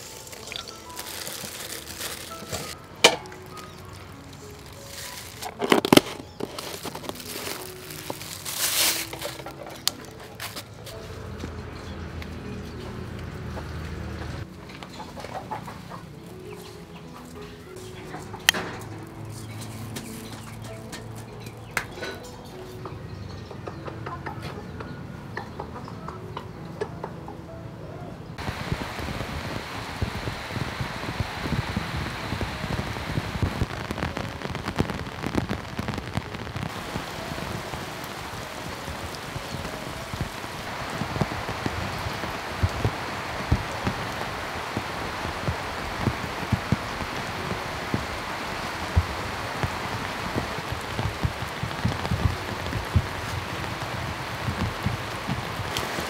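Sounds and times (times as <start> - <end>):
drips and splashes close by: 0.0 - 5.4
heavy rain falling: 0.0 - 14.5, 28.4 - 56.0.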